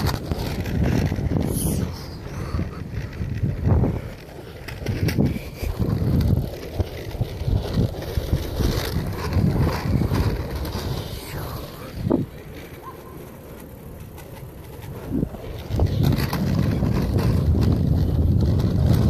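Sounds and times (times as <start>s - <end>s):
wind buffeting microphone: 0.0s - 12.8s, 14.4s - 19.0s
wheels rolling on concrete: 0.0s - 19.0s.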